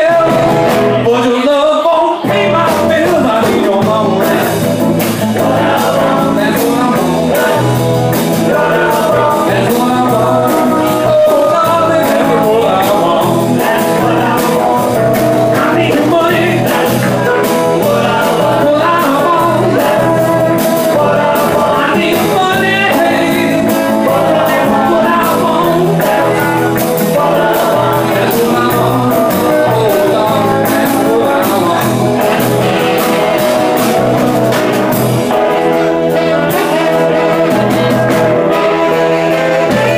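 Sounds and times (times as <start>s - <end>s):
rhythm and blues band playing: 0.0s - 39.9s.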